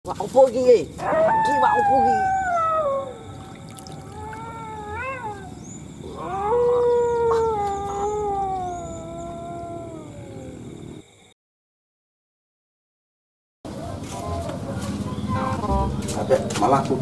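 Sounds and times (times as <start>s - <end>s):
howling wails: 1.0s - 11.1s.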